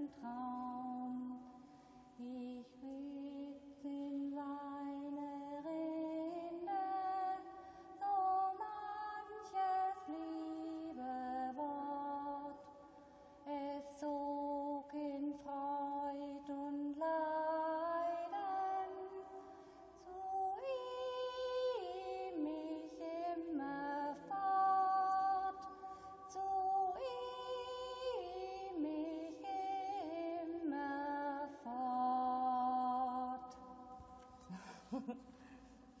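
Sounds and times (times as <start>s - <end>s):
person singing in echoing hall: 0.0s - 36.0s.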